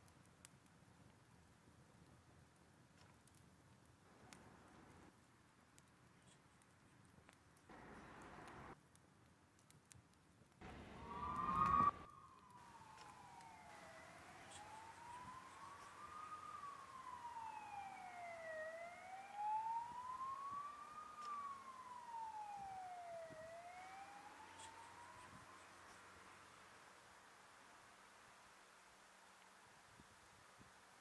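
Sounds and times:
emergency siren wailing: 0:10.6 - 0:26.7.

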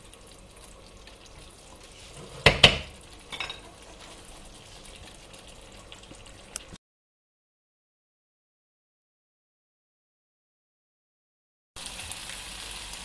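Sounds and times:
rice simmering in a pan: 0:00.0 - 0:06.8, 0:11.8 - 0:13.0.

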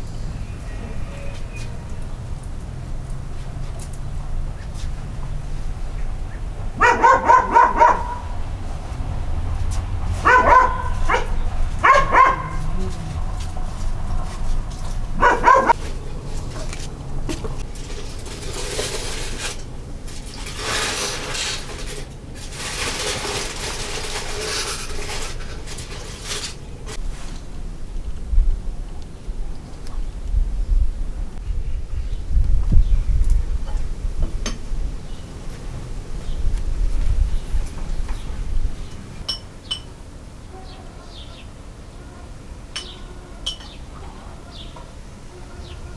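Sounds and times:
aluminium foil crinkling: 0:17.6 - 0:27.5
metal spoon clinking on plate: 0:42.8 - 0:43.8.

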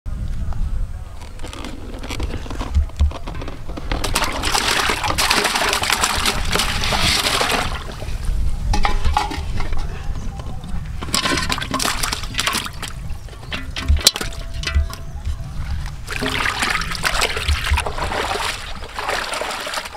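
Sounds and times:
water splashing in pot: 0:04.2 - 0:07.9, 0:16.0 - 0:19.9.

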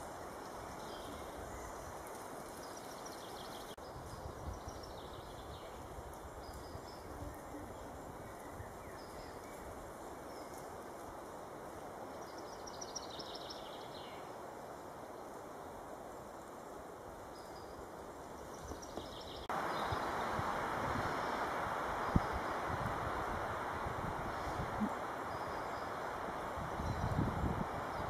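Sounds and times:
woodland ambient hiss: 0:00.0 - 0:28.0.

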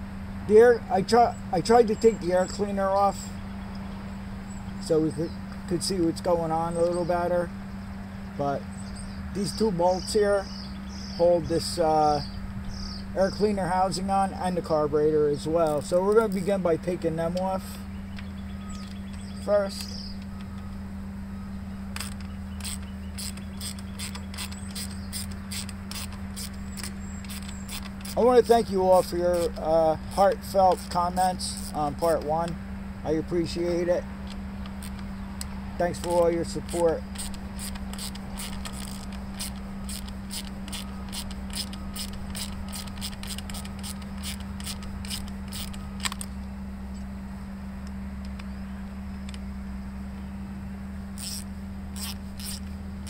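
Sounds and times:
steady low hum: 0:00.0 - 0:53.0
ratchet wrench clicking: 0:22.0 - 0:28.5, 0:29.3 - 0:31.9, 0:34.2 - 0:35.0, 0:36.0 - 0:46.3, 0:51.2 - 0:52.7.

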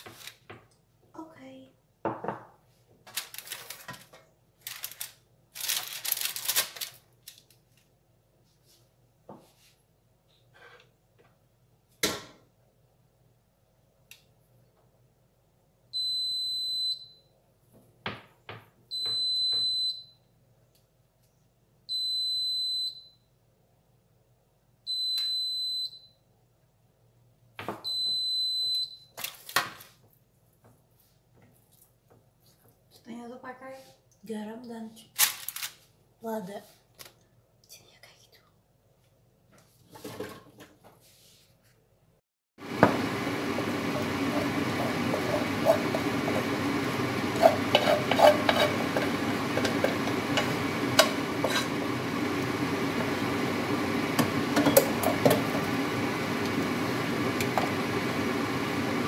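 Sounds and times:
rustling: 0:03.1 - 0:07.8
kitchen knocks and clicks: 0:54.2 - 0:55.7.

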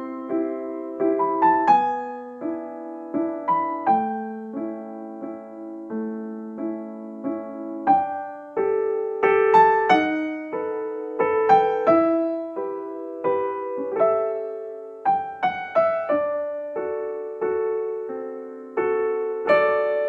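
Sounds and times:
gentle piano melody: 0:00.0 - 0:20.0.

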